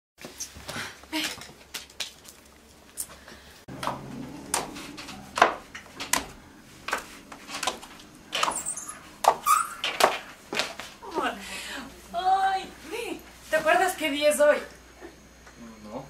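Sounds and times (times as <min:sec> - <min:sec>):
footsteps on wooden stairs: 0:03.7 - 0:11.3.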